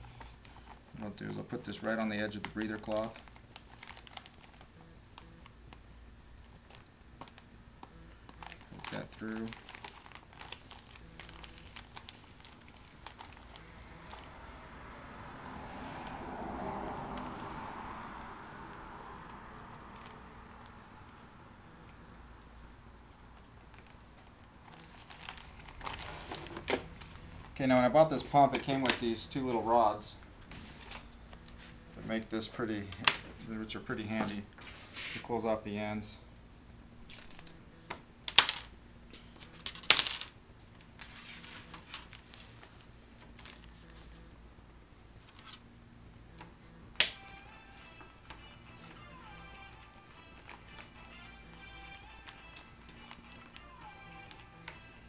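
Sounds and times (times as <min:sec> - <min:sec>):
plastic film crinkling: 0:00.0 - 0:05.8, 0:06.4 - 0:14.4, 0:23.1 - 0:29.8, 0:39.2 - 0:44.1, 0:47.1 - 0:55.0
soft plastic rustling: 0:00.0 - 0:05.8, 0:06.4 - 0:14.3, 0:22.4 - 0:35.4, 0:38.6 - 0:44.3
sharp crackling plastic snaps: 0:47.0 - 0:47.2.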